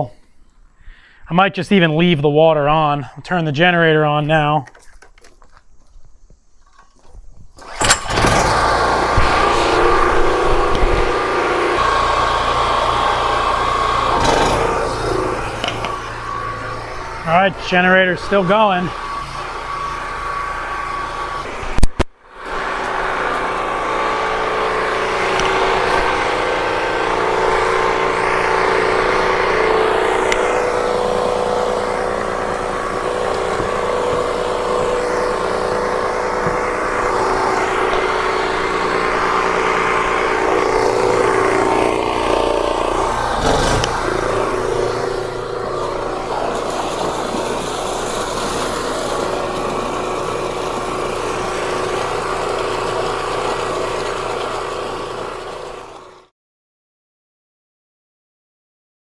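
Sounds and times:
generator running: 6.6s - 56.3s.

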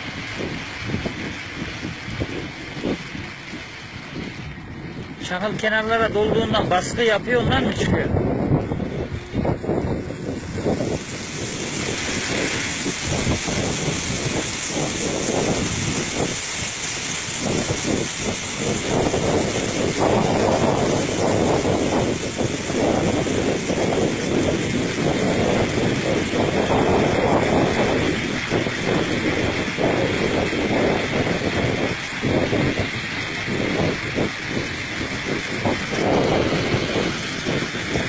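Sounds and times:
engine running steadily: 0.0s - 38.0s.

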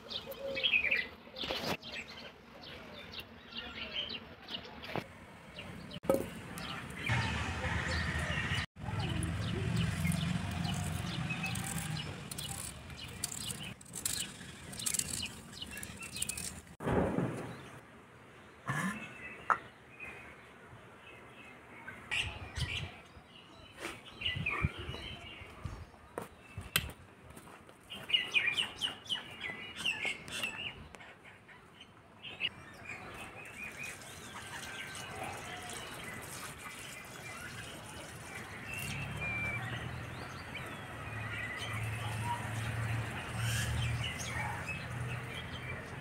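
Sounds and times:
small birds chirping: 8.4s - 16.8s, 27.9s - 46.0s.

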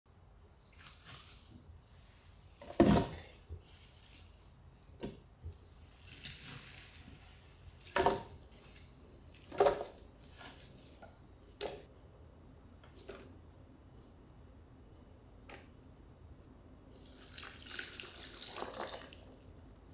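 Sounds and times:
kitchen knocks and clunks: 7.9s - 8.4s.

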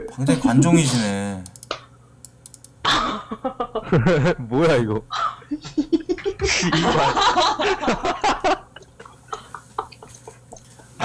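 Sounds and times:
computer keys clicking: 1.4s - 2.8s
man laughing: 2.9s - 11.0s.

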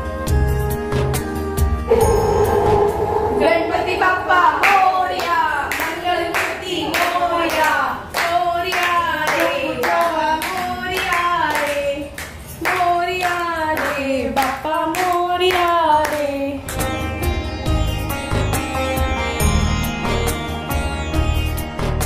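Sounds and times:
devotional singing: 1.9s - 7.8s
rhythmic hand clapping: 4.6s - 16.9s.

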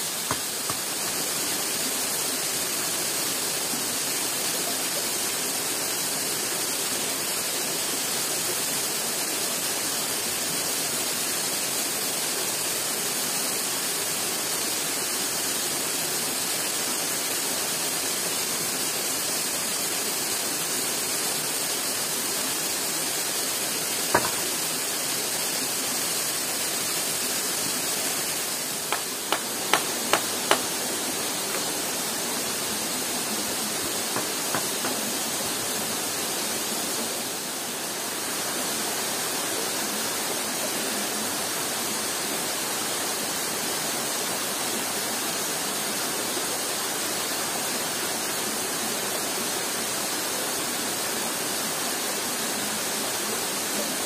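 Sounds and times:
waterfall rushing: 0.0s - 10.4s, 13.6s - 54.0s
sharp knock: 24.2s - 24.5s, 28.9s - 30.7s.

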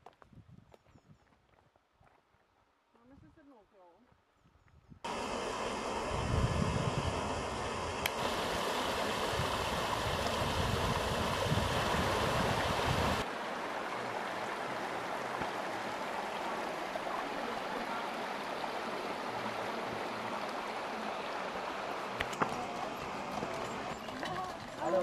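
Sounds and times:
stream rushing over rocks: 5.1s - 25.0s.

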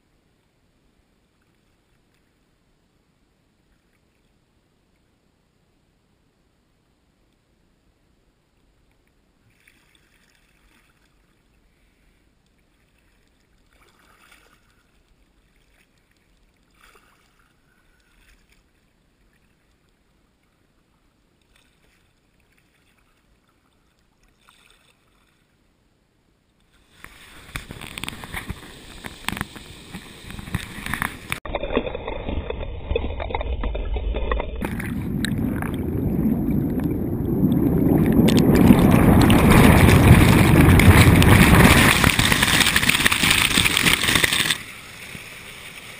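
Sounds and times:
kayak paddle splashing water: 12.6s - 19.8s, 26.8s - 45.9s
water rushing over spillway: 27.1s - 45.9s.

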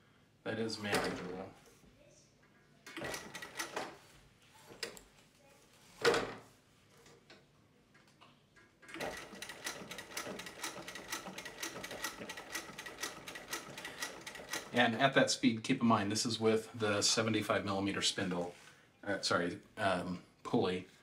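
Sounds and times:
sewing machine stitching: 2.9s - 4.0s, 8.9s - 14.9s.

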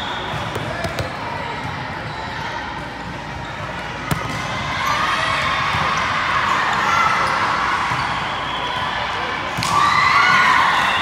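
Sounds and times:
din of voices in gym: 0.0s - 11.0s
hand slapping volleyball: 0.4s - 1.1s.

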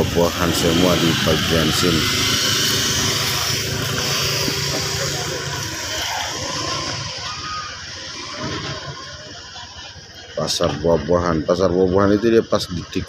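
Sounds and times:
motorcycle engine passing: 0.0s - 9.3s
street and market hum: 0.0s - 13.0s.

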